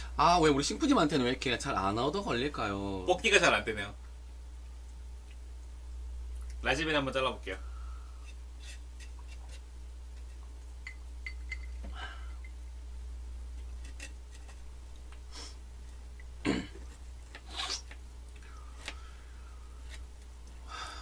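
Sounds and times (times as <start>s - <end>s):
steady low hum: 0.0s - 21.0s
knife blade scraping: 8.2s - 9.6s, 13.8s - 14.7s.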